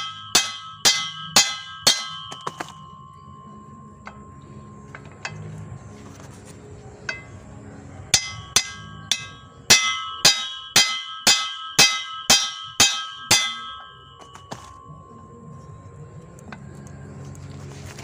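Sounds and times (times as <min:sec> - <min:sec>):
hammer striking steel: 0:00.0 - 0:05.6, 0:07.0 - 0:15.2.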